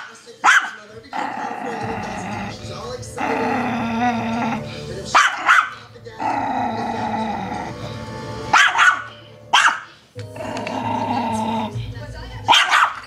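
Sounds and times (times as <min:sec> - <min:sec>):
dog barking sharply: 0:00.0 - 0:00.8, 0:05.2 - 0:05.8, 0:08.5 - 0:09.9, 0:12.5 - 0:13.0
small dog growling: 0:01.1 - 0:11.8.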